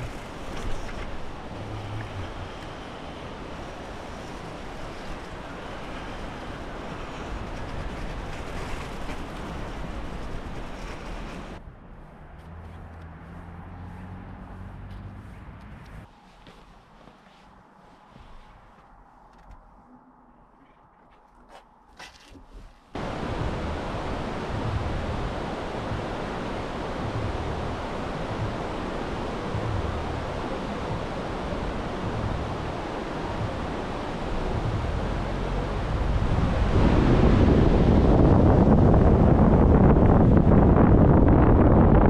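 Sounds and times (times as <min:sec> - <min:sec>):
wind buffeting microphone: 0:00.0 - 0:11.8, 0:22.5 - 0:42.0
loud rushing noise: 0:23.0 - 0:41.7.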